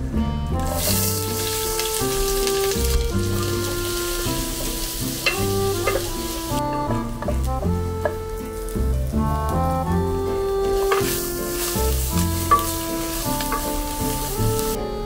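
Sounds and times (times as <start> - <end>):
background music: 0.0 - 15.0
onions sizzling in oil: 0.6 - 14.8
spatula scraping pot: 0.7 - 8.6, 10.6 - 14.7.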